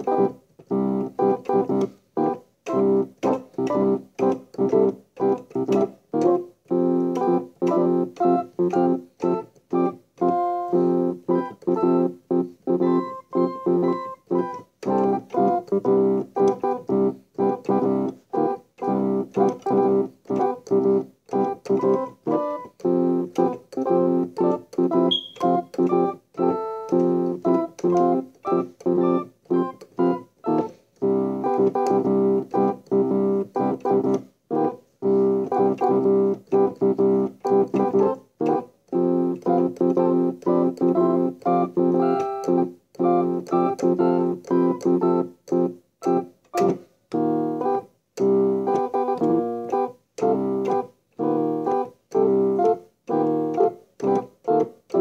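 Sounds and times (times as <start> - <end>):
choppy keyboard chords: 0.0 - 55.0.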